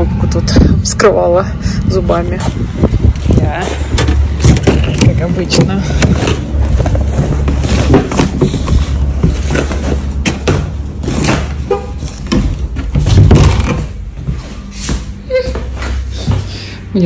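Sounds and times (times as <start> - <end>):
heavy low rumble: 0.0 - 17.0.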